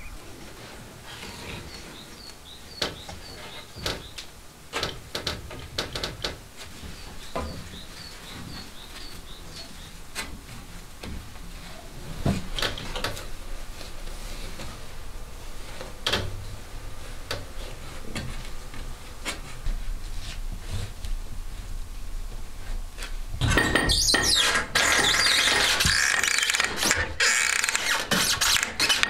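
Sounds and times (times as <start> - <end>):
wooden loom clicks and knocks: 3.8 - 6.4, 23.4 - 29.0.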